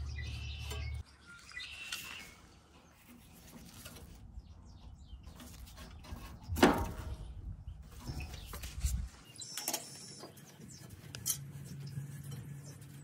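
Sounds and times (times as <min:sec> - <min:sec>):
hand tool scraping metal: 0:11.0 - 0:13.0.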